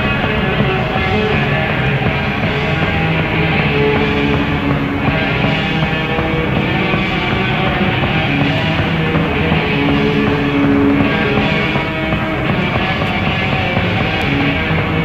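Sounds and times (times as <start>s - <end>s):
loud rock music: 0.0s - 15.0s.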